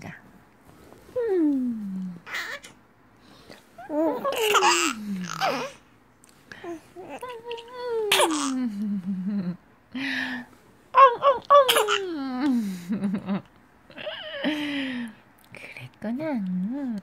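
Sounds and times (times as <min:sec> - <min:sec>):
baby babbling and squealing: 0:02.3 - 0:02.7
baby laughing: 0:02.3 - 0:02.7, 0:03.8 - 0:05.8, 0:07.0 - 0:08.6.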